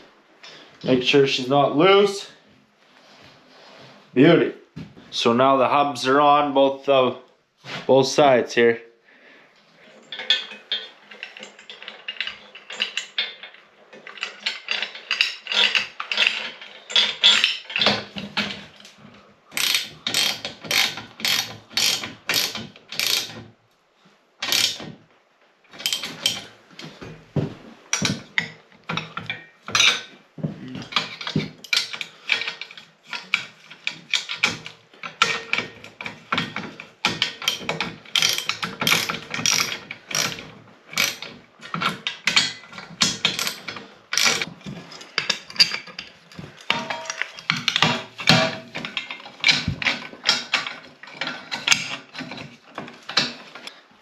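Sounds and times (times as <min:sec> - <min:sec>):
ratchet wrench clicking: 0:19.6 - 0:23.3, 0:24.5 - 0:24.8.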